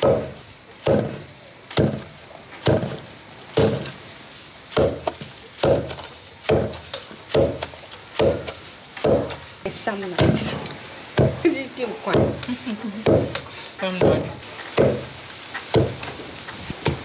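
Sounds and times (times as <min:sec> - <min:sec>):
wooden pestle thudding in mortar: 0:00.0 - 0:03.0, 0:03.6 - 0:04.0, 0:04.7 - 0:09.4, 0:11.1 - 0:11.4, 0:12.1 - 0:15.1, 0:15.7 - 0:16.1.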